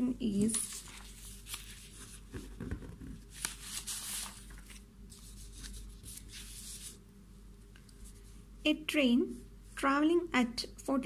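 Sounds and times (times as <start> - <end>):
paper rustling and sliding: 0.3 - 7.0.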